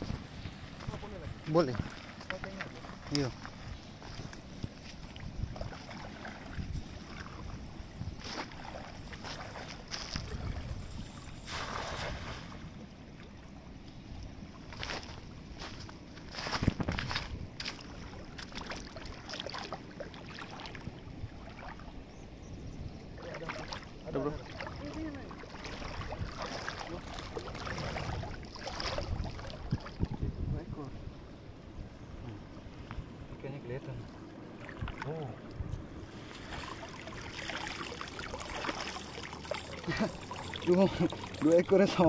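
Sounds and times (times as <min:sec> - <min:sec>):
small water splashes: 0:00.0 - 0:13.4, 0:17.0 - 0:22.1, 0:23.0 - 0:30.3, 0:34.0 - 0:42.0
river water lapping around legs: 0:00.0 - 0:30.3, 0:33.7 - 0:42.0
water streaming off net: 0:11.4 - 0:12.7, 0:36.0 - 0:42.0.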